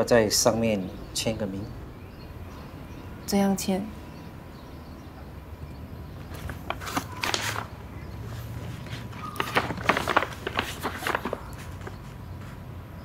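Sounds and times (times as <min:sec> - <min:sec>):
paper bag rustling: 0:06.2 - 0:12.2.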